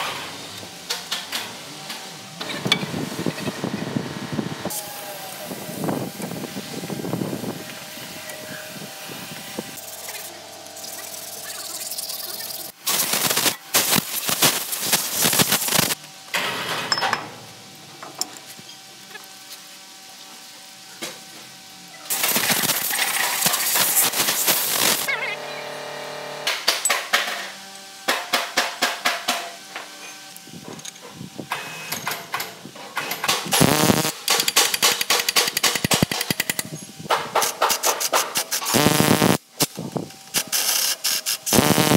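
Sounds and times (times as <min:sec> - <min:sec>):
workshop background noise: 0:00.0 - 0:41.9
impact wrench hammering: 0:34.2 - 0:36.6.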